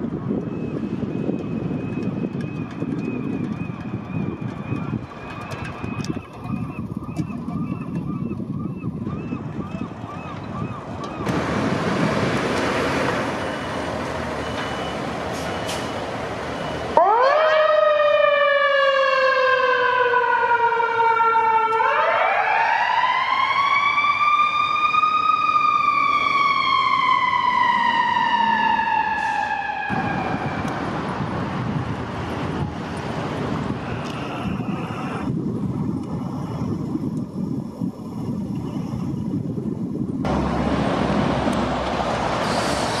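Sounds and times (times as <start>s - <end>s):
rushing outdoor noise: 0.0s - 17.0s, 25.8s - 43.0s
fire engine siren wailing: 0.0s - 35.4s.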